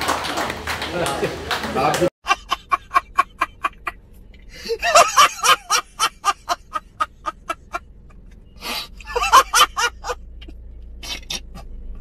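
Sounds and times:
man laughing loudly: 0:02.2 - 0:04.0, 0:04.6 - 0:07.8, 0:09.0 - 0:10.2.

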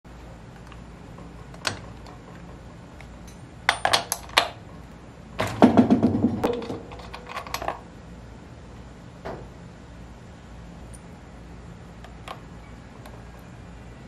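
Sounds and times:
plastic housing clicks and clatter: 0:06.4 - 0:07.8.

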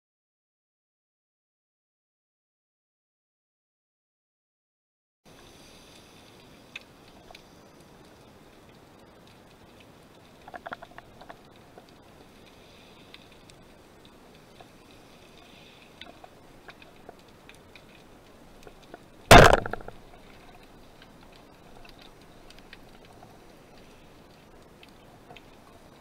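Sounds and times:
faint clicks: 0:05.3 - 0:26.0
speargun shot underwater: 0:19.3 - 0:20.0.

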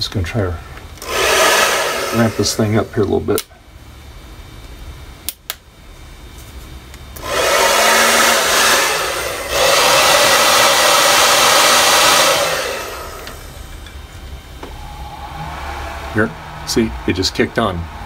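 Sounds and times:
hair dryer blowing: 0:01.0 - 0:03.3, 0:07.2 - 0:14.0, 0:14.6 - 0:18.0.

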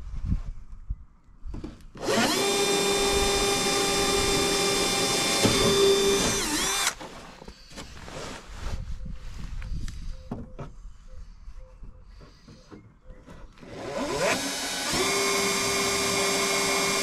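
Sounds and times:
cordless drill motor whine: 0:02.0 - 0:07.0, 0:13.6 - 0:17.0.

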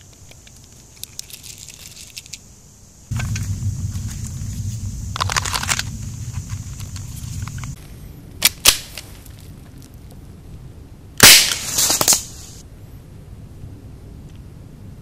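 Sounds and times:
air pistol shot: 0:11.2 - 0:12.5.

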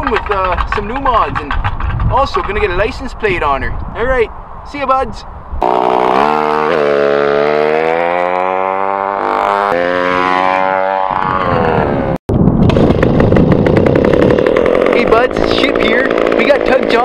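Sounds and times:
scooter engine running: 0:05.6 - 0:17.0.

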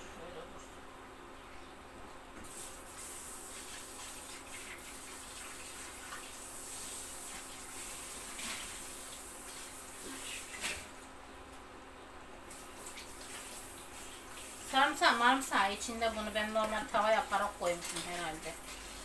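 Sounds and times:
water running from tap: 0:02.4 - 0:10.9, 0:12.5 - 0:19.0.

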